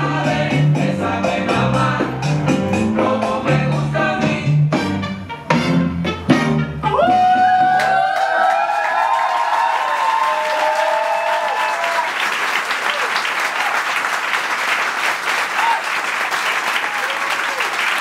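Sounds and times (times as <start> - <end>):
whoops: 6.8 - 12.2, 12.8 - 13.8, 15.6 - 15.9
audience applauding and cheering: 6.8 - 18.0.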